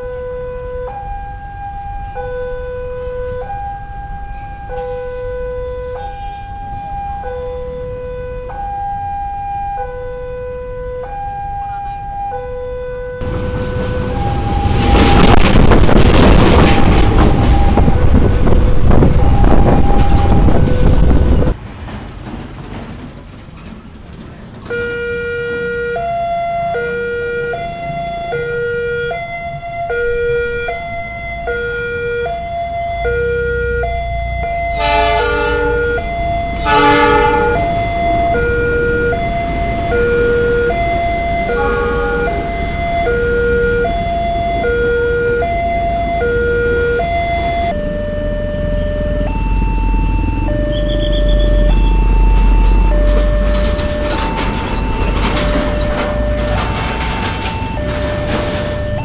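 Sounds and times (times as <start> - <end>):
level crossing two-tone alarm: 0.0 - 15.4, 16.5 - 21.5, 24.7 - 59.0
train passing: 13.2 - 59.0
short loud blasts: 34.7 - 38.2.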